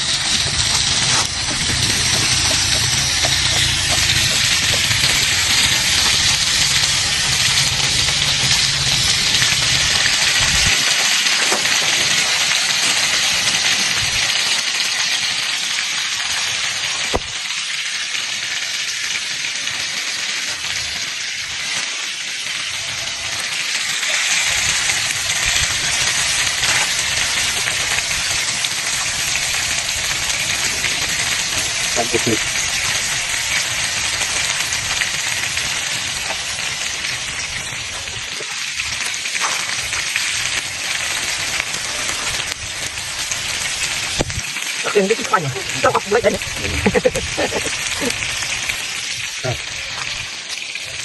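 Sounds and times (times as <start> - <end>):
food sizzling over fire: 0.0 - 51.0
wind rumble on microphone: 0.1 - 10.9, 44.0 - 44.5.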